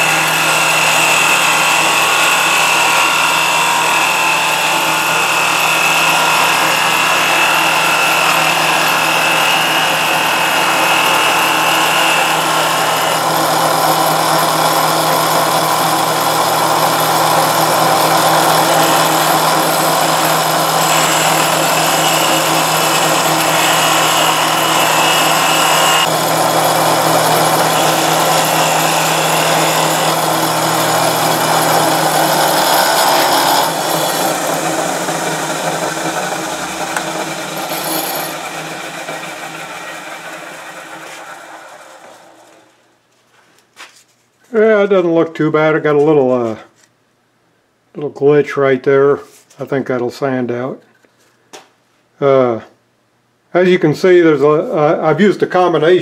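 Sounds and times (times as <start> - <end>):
hiss of wood being cut: 0.0 - 42.7
lathe humming: 0.0 - 42.8.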